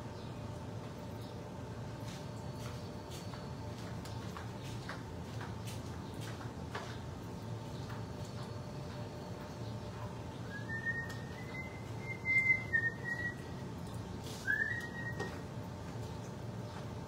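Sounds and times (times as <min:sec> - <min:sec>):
low steady hum: 0:00.0 - 0:17.0
person whistling a tune: 0:10.5 - 0:13.4, 0:14.4 - 0:15.3.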